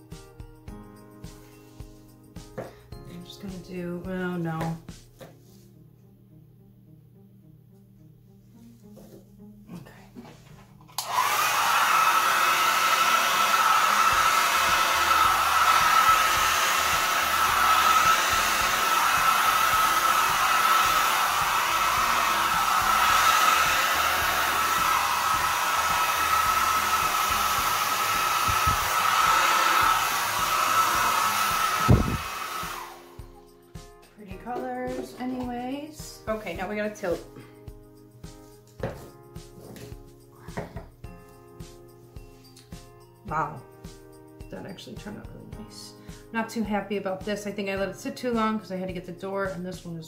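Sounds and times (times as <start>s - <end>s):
hair dryer running: 10.2s - 33.6s, 34.4s - 37.4s.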